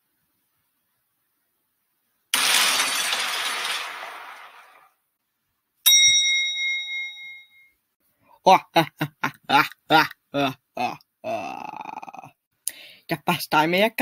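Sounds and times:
glass breaking crash: 2.3s - 5.0s
sharp metallic ding: 5.9s - 7.7s.

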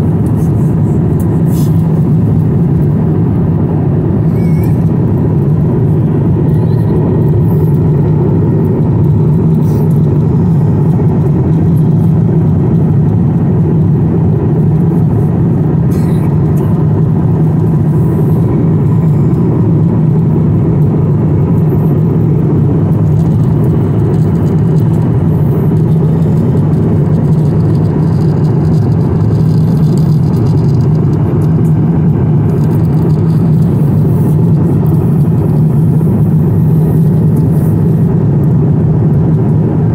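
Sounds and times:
jet airliner cabin rumble: 0.0s - 39.9s.

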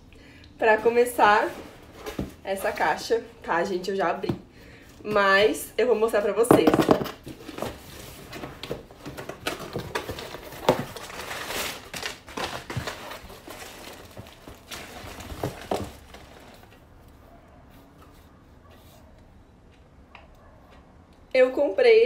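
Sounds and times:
packaging rustling and crinkling: 7.2s - 16.9s.

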